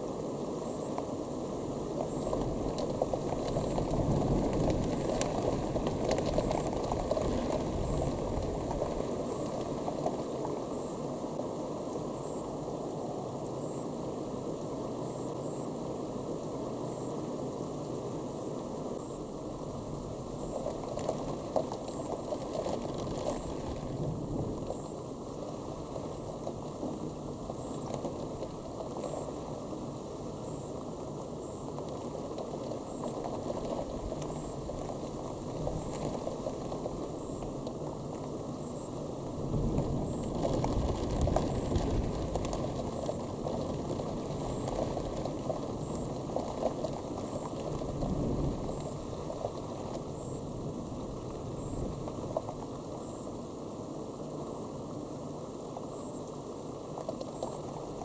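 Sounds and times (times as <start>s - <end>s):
steady rain hiss: 0.0s - 58.0s
distant thunder rumble: 39.2s - 52.6s.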